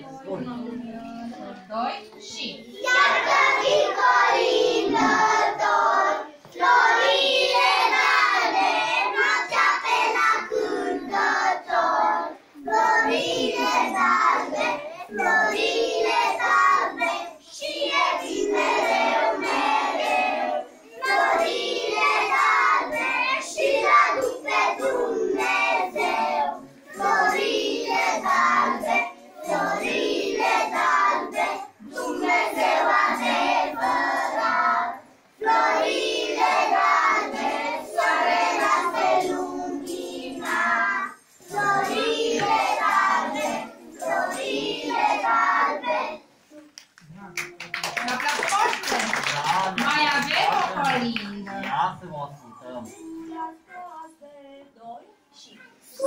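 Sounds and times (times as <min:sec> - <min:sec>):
children singing together: 0:02.7 - 0:46.4.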